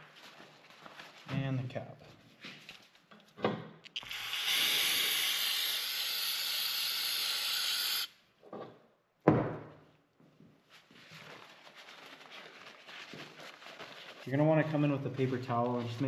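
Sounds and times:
aerosol can spraying: 4.0s - 8.1s.

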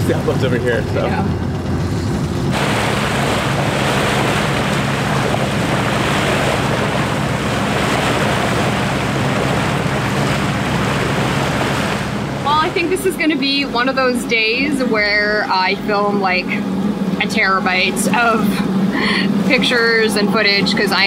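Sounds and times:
wind on microphone: 0.0s - 16.4s
boat engine humming: 0.0s - 21.0s
water washing past hull: 0.0s - 21.0s.

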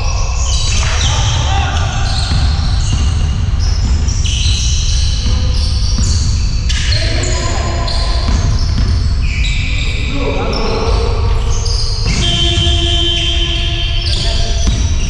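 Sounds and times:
sneakers squeaking on court: 0.2s - 15.0s
basketball bouncing on floor: 2.0s - 7.4s, 8.0s - 9.7s, 14.1s - 15.0s.

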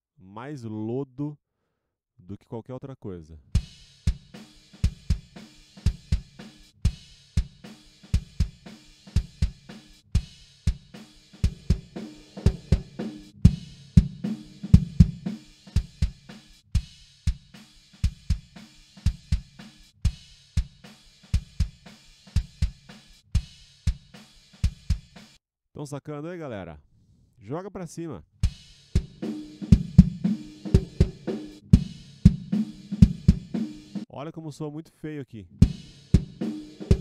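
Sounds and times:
looped kick drum beats: 3.6s - 25.3s, 28.4s - 34.0s, 35.6s - 37.0s
drum kit spill: 10.9s - 16.4s, 28.5s - 34.1s, 35.6s - 37.0s.

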